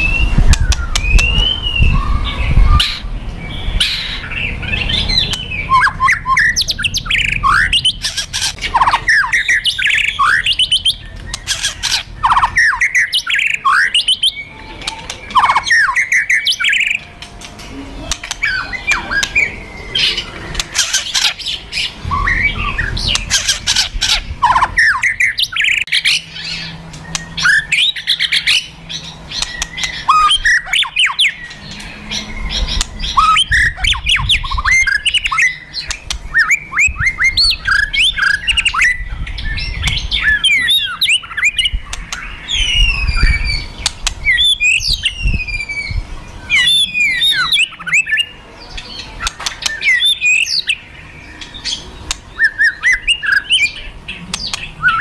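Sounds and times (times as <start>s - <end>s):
bird whistles: 0.0s - 3.1s, 3.8s - 17.0s, 51.4s - 53.8s.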